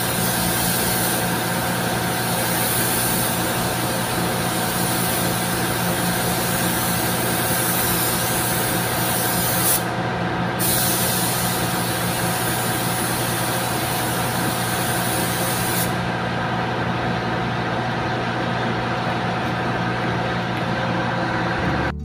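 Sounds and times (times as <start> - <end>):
paint spray gun hissing: 0.0 - 9.9, 10.6 - 16.1
steady machine hum: 0.0 - 22.0.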